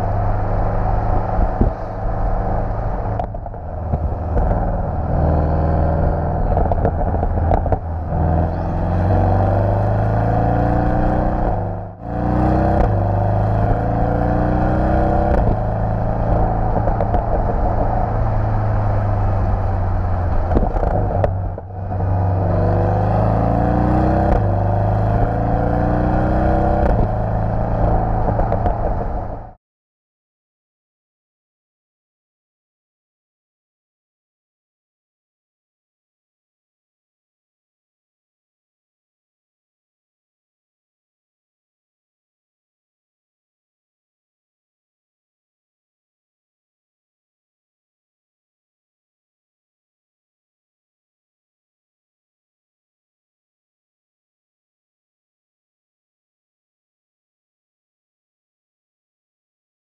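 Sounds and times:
car engine revving through gears: 0.7s - 29.6s.

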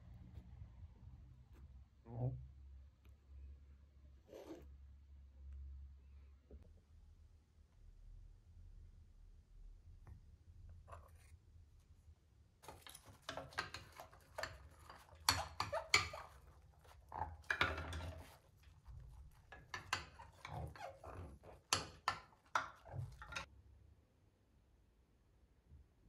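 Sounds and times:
tools clattering against basin: 12.6s - 23.5s.

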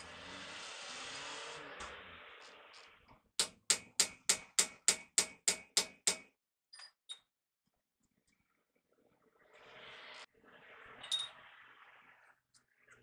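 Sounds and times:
hammer striking metal: 3.4s - 6.3s.

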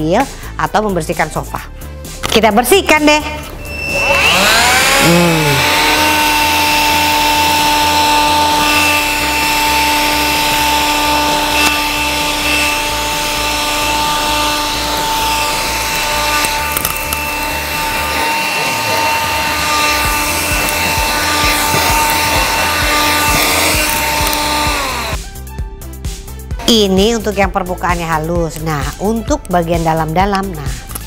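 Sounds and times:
handheld vacuum cleaner whining: 3.4s - 25.2s.

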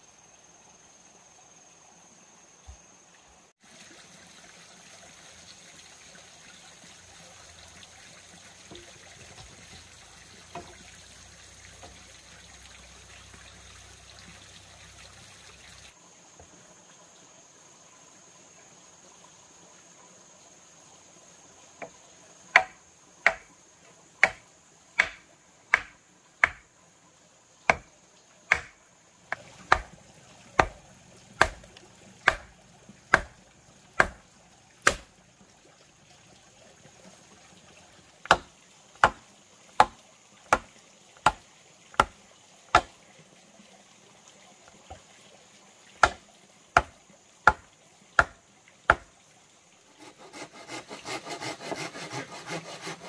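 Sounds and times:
hammer striking wooden stake: 22.5s - 23.5s, 24.2s - 24.4s, 25.0s - 26.6s, 27.7s - 27.9s, 28.5s - 30.0s, 30.6s - 30.8s, 31.4s - 33.4s, 34.0s - 34.2s, 34.8s - 35.1s, 38.3s - 39.2s, 39.8s - 41.4s, 42.0s - 42.9s, 46.0s - 46.2s, 47.5s - 49.1s.

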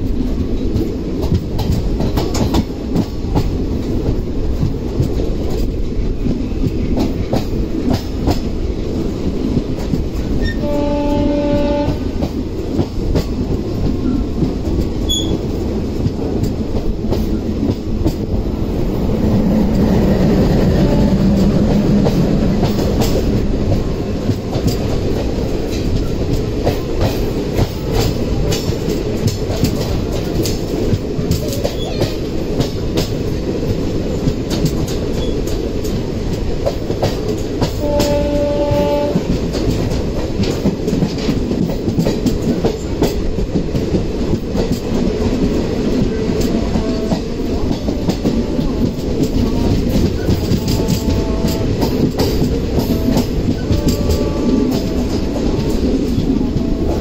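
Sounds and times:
train rumble with wheel clicks: 0.0s - 57.0s
railway horn blast: 10.4s - 12.4s, 20.4s - 23.1s, 37.7s - 39.4s, 50.5s - 52.2s, 52.8s - 55.7s.

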